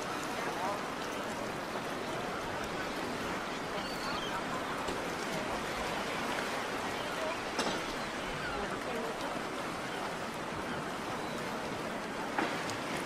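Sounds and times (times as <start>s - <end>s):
murmur of voices: 0.0s - 12.4s.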